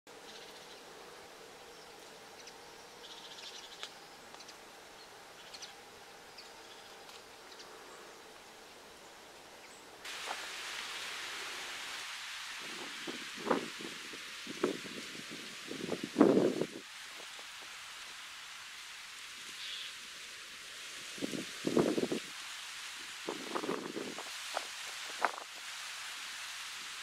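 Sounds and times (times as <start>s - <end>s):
loud steady hiss: 0.1s - 27.0s
bird chirps: 1.7s - 7.8s.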